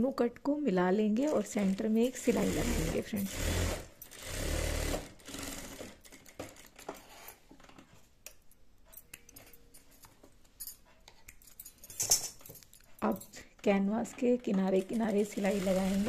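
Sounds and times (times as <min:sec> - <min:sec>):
sewing machine stitching: 0:02.1 - 0:06.8, 0:14.7 - 0:16.0.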